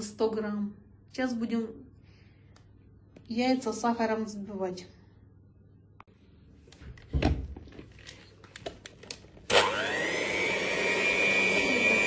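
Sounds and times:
electric hand mixer whining: 9.5s - 12.0s.

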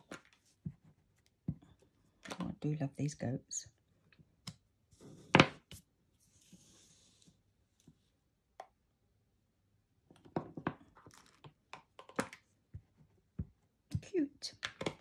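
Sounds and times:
card sliding across mat: 6.2s - 7.4s.

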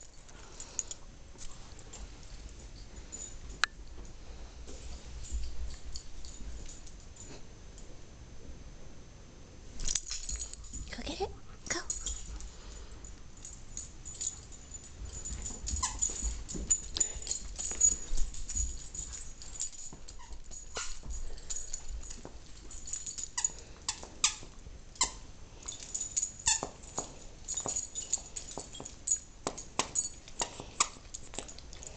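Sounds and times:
dogs chewing toys: 9.8s - 31.9s.

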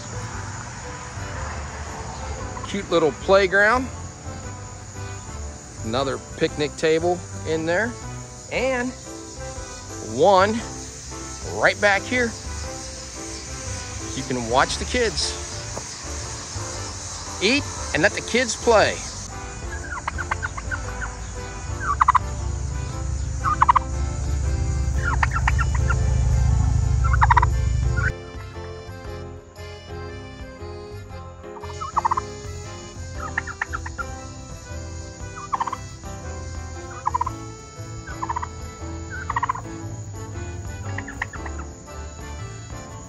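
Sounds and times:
turkey gobbling: 8.6s - 28.1s, 31.6s - 41.8s
steady low rumble: 10.6s - 28.2s.

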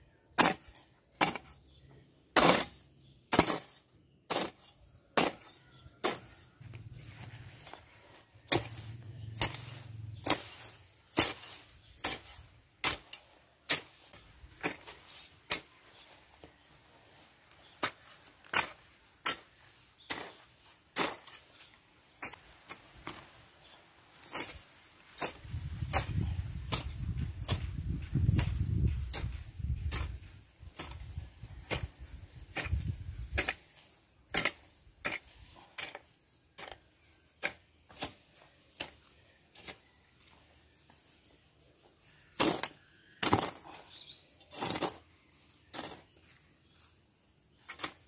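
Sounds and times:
hoe chopping into dry soil: 0.3s - 1.6s, 2.4s - 6.9s, 8.4s - 16.0s, 17.6s - 23.3s, 24.2s - 36.8s, 37.4s - 39.8s, 42.3s - 45.0s, 47.6s - 48.0s.

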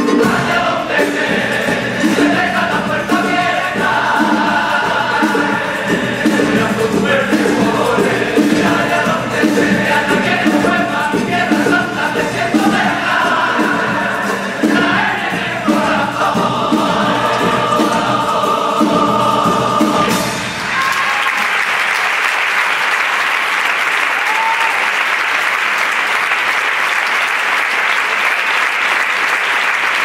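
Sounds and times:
male choir singing with guitar: 0.0s - 20.6s
audience applause: 20.6s - 30.0s.

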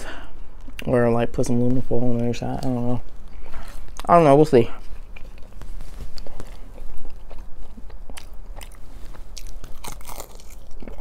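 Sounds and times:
crunchy chewing of fried chicken: 4.9s - 11.0s.

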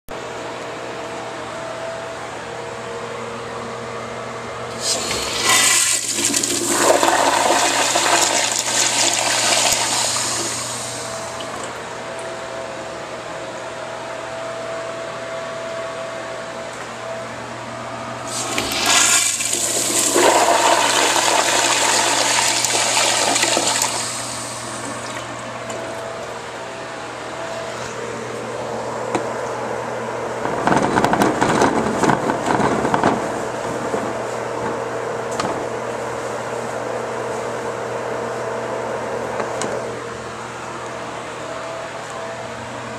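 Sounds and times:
steady hum: 0.1s - 42.9s
toilet flushing: 4.7s - 11.8s, 18.3s - 26.0s.

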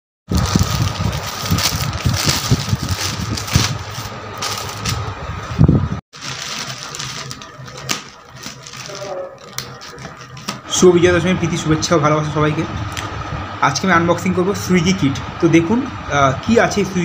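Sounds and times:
plastic bag crinkling: 0.3s - 5.1s, 6.2s - 10.6s.

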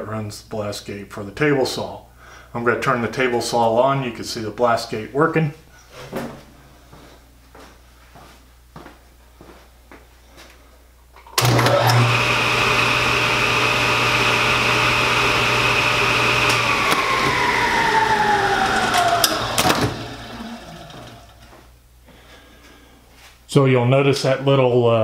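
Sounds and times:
table saw motor whining: 11.4s - 21.5s.

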